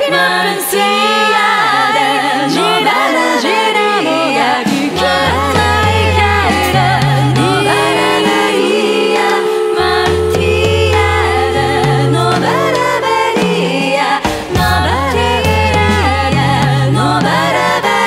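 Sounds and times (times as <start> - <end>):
chant-like singing: 0.0 - 18.0
didgeridoo drone: 5.0 - 17.8.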